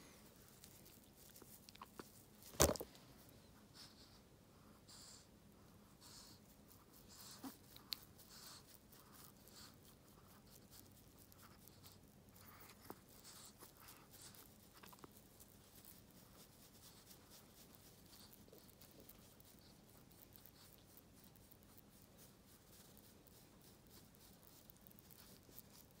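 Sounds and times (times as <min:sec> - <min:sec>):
cloth rubbing on fur: 0:00.0 - 0:04.0, 0:12.5 - 0:26.0.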